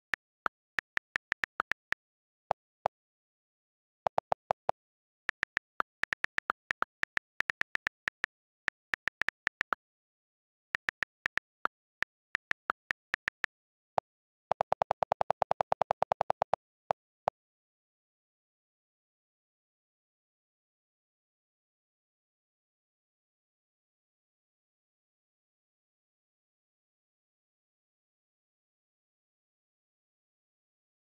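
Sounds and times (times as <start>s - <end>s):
on-screen keyboard clicks: 0.0s - 2.7s, 4.1s - 9.8s, 10.7s - 13.6s, 14.5s - 16.6s.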